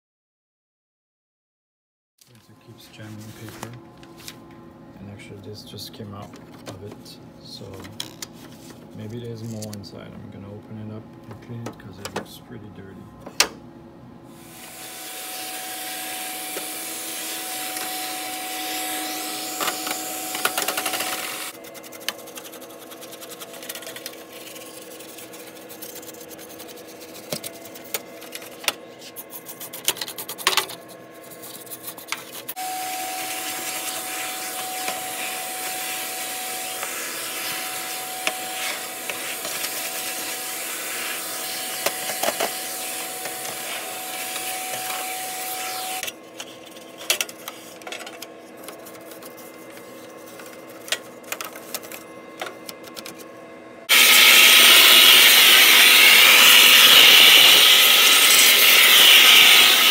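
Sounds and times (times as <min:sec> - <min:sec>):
vacuum cleaner running: 0:14.3 - 0:29.1, 0:31.2 - 0:46.1, 0:47.6 - 0:59.9
loud rush of air from nozzle: 0:53.9 - 0:59.9.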